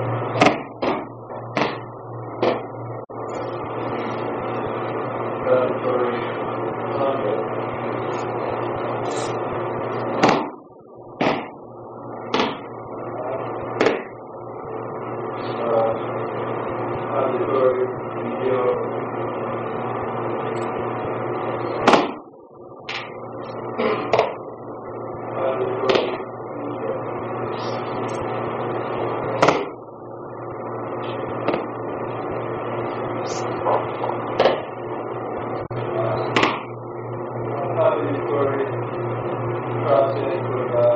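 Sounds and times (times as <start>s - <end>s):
steady background hum: 0.0s - 40.9s
slaps on a padded mat: 0.4s - 1.8s, 10.2s - 10.6s, 11.2s - 11.6s, 12.3s - 12.6s, 13.8s - 14.1s, 21.8s - 22.2s, 29.4s - 29.8s, 31.4s - 31.7s, 34.4s - 34.7s, 36.3s - 36.7s
body slapping a mat: 10.2s - 10.6s, 12.3s - 12.6s.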